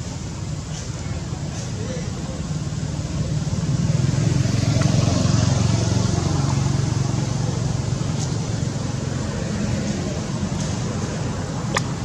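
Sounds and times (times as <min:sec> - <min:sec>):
vehicle engine passing by: 0:03.3 - 0:12.0.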